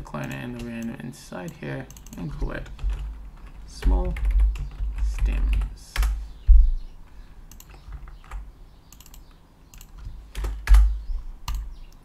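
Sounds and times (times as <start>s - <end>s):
computer keyboard typing: 1.9s - 6.2s, 7.5s - 11.7s
heavier knock: 6.5s - 6.8s.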